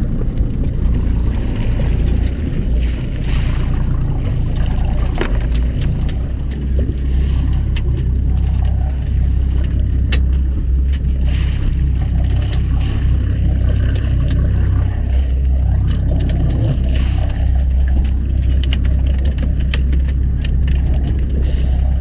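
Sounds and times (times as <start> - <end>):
boat engine droning: 0.0 - 22.0
sharp clicks and knocks: 17.9 - 21.4.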